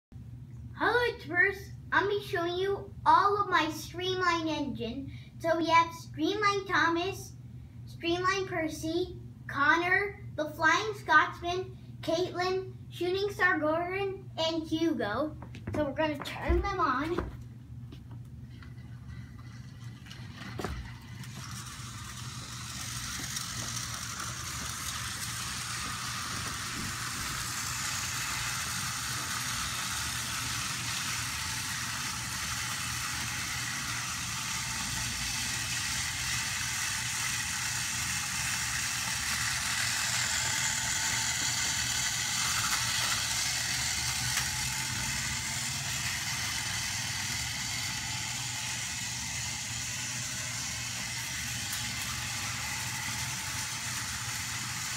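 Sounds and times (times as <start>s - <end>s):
toy train motors whirring: 18.5s - 54.9s
wheels clattering on plastic track: 18.5s - 54.9s.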